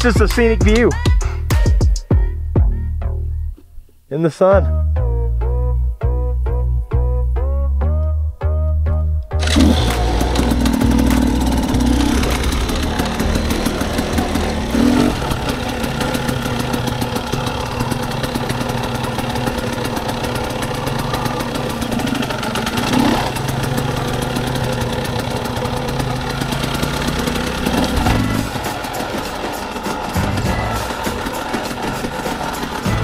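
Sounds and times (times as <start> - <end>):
dirt bike engine running: 9.4 - 33.0.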